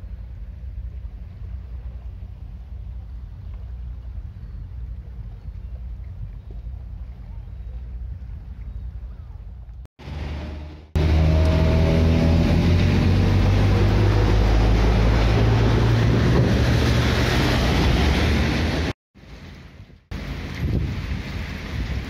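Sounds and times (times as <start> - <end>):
truck diesel engine drone: 10.0 - 18.9.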